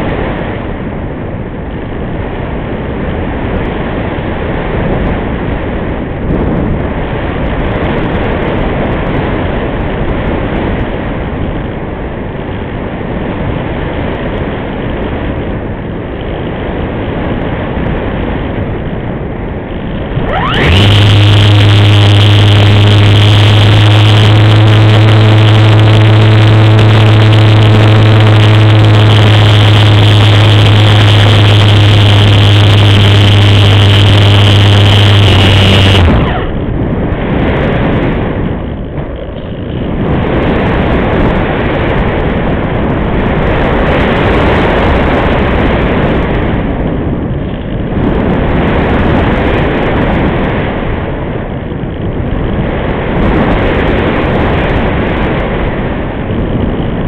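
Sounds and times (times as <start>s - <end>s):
wind rush over microphone: 0.0s - 57.0s
electric motor and propeller drone: 19.7s - 42.2s.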